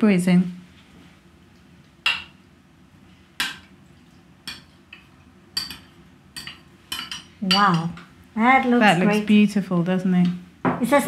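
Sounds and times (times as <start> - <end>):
metal spoon clinking on pot: 5.6 - 8.0.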